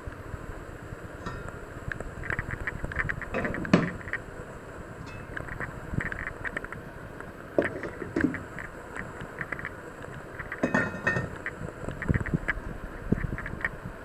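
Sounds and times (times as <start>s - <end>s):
pots knocking and clinking: 10.6s - 11.4s.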